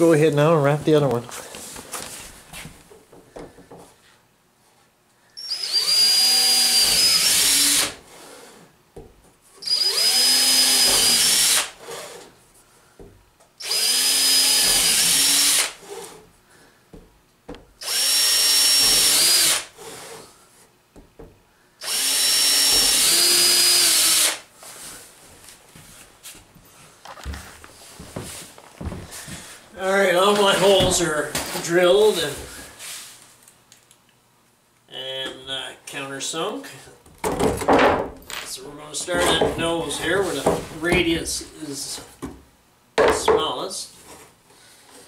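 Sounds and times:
cordless drill boring into wood: 5.4s - 8.0s, 9.6s - 12.3s, 13.6s - 16.2s, 17.8s - 20.2s, 21.8s - 24.4s.

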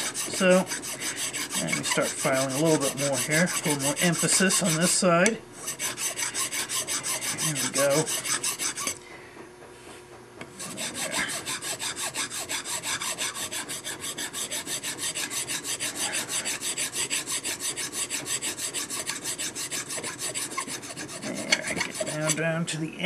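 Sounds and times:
hand file rasping on metal rail: 0.0s - 9.0s, 10.5s - 22.5s.

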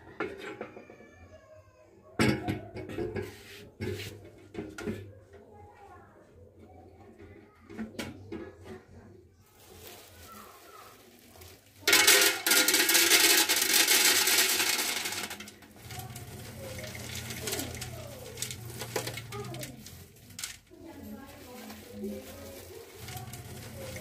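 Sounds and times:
coffee beans pouring into metal drum: 11.6s - 20.7s, 21.3s - 24.0s.

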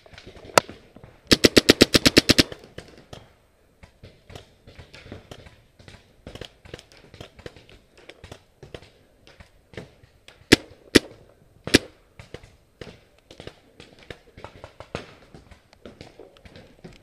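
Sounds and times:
paintball marker rapid burst: 1.3s - 2.7s, 11.7s - 11.9s.

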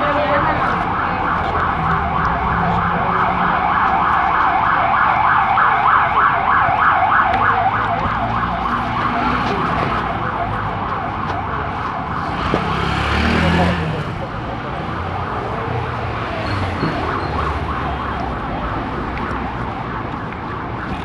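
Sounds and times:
siren yelping: 0.1s - 12.6s, 16.2s - 21.0s.

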